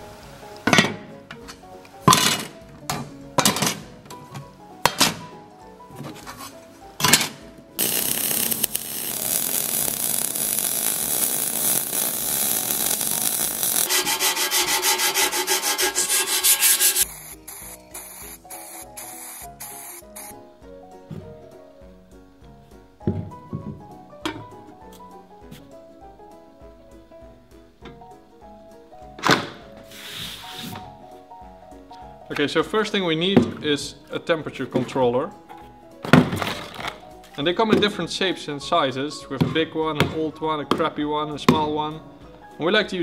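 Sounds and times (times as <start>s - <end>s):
soft background music: 0.0s - 43.0s
tool bursts on steel sheet: 7.0s - 20.3s
arc welding crackling: 7.2s - 20.4s
fast pulsing noise: 7.8s - 20.3s.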